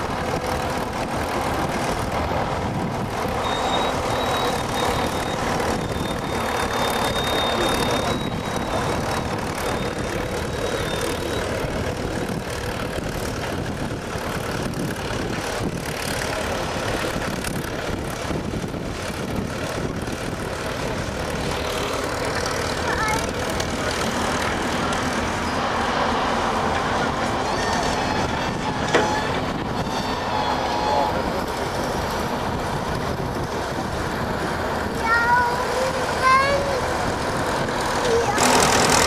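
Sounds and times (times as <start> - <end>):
excavator engine under load: 0.0 - 39.0
cable gear rattling: 38.0 - 39.0.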